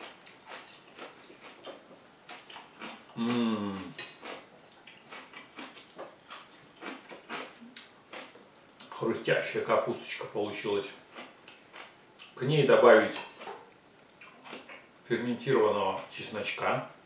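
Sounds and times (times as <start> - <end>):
crunching and chewing: 0.0 - 9.0, 10.8 - 12.4, 13.1 - 14.9
man humming: 3.2 - 4.0.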